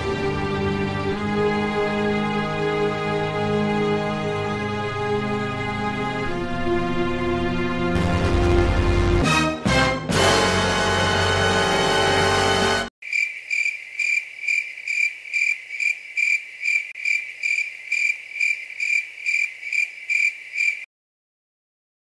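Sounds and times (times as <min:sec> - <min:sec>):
cricket chirping: 0:13.0 - 0:20.9.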